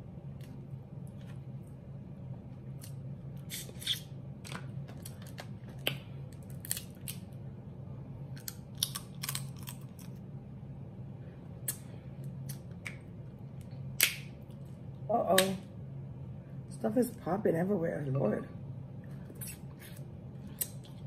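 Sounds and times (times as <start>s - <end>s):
steady low hum: 0.0s - 21.0s
crab shells cracking: 3.8s - 7.3s, 8.3s - 10.1s.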